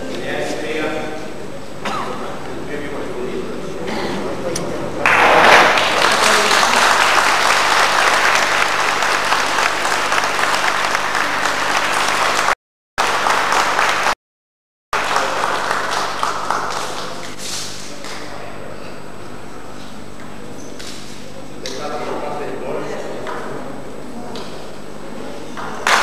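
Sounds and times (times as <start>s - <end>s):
audience applauding: 5.0s - 14.2s, 15.0s - 17.4s.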